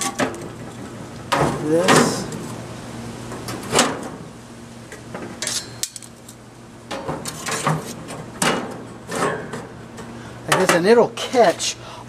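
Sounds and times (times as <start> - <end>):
metal grates clanking and scraping: 0.0 - 2.5, 5.1 - 6.1, 6.9 - 9.7, 10.5 - 11.7.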